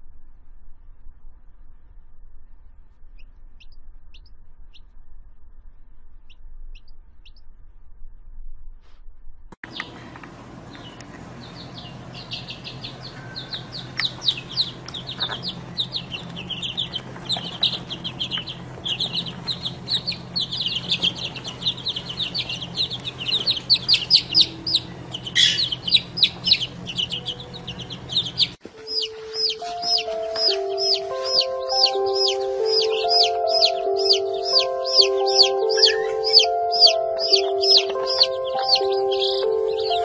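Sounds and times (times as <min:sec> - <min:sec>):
low steady hum: 0:00.0 - 0:40.0
chicks peeping: 0:06.3 - 0:07.4, 0:09.6 - 0:40.0
music: 0:28.1 - 0:40.0.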